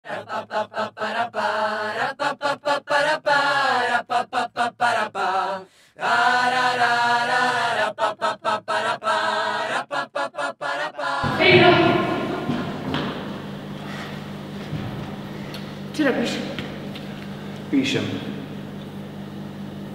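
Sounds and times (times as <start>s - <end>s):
chant-like singing: 0.0s - 14.2s
fuller echoing voice: 10.8s - 16.8s, 17.7s - 18.6s.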